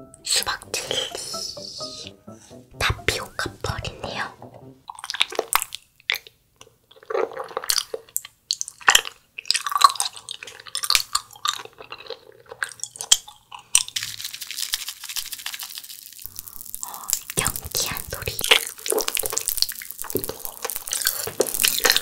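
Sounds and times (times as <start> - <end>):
chewing gummy candy: 5.1 - 22.0
tiny candies pouring: 13.7 - 22.0.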